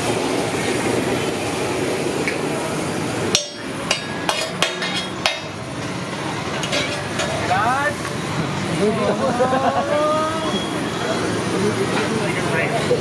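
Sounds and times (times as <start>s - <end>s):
steady background hum: 0.0s - 13.0s
metal spatula clacking on griddle: 3.3s - 5.6s, 6.5s - 7.5s.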